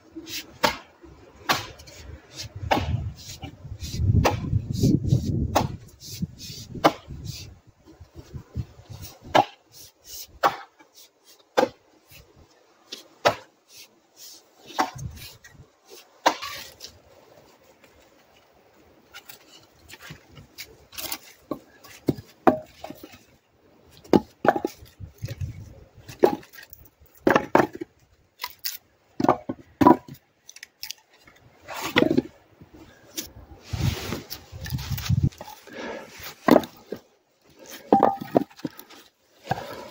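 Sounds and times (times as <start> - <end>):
axe chopping wood: 0.6 - 1.9, 2.6 - 3.1, 4.2 - 4.6, 5.4 - 5.9, 6.7 - 7.2, 9.2 - 9.6, 10.4 - 10.8, 11.6 - 11.8, 13.2 - 13.5, 16.2 - 16.6, 27.2 - 27.8
split wood pieces clattering: 19.1 - 23.3, 24.0 - 32.4, 34.5 - 39.9.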